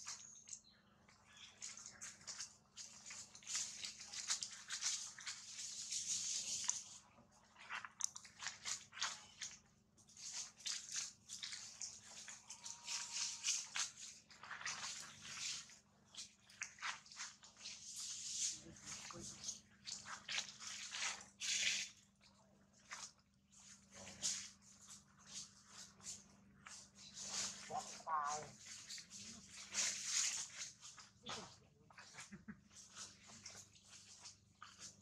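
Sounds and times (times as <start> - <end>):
dry leaves crackling and rustling: 1.3 - 7.0, 10.1 - 15.7, 23.5 - 35.0.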